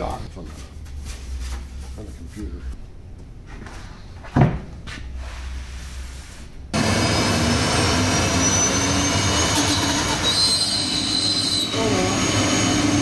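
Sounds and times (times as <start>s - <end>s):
cnc router spinning up: 6.8s - 13.0s.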